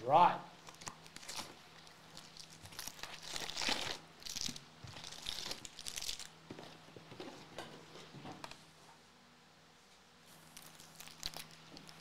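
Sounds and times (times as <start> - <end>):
foil packs crinkling: 0.6 - 7.5.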